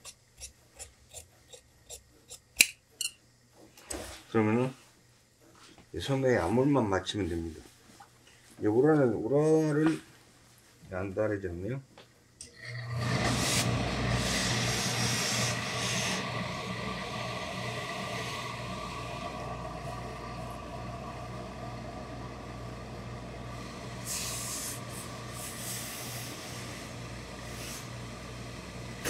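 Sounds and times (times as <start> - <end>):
low electric hum: 0.0 - 29.0
steam iron hissing: 12.8 - 21.6, 23.5 - 28.8.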